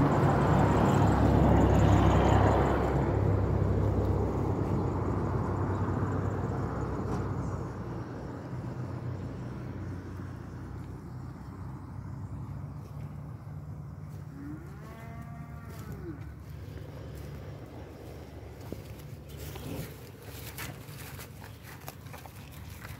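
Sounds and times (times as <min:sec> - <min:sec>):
steady low hum: 0:00.0 - 0:22.9
cow mooing: 0:14.3 - 0:16.4.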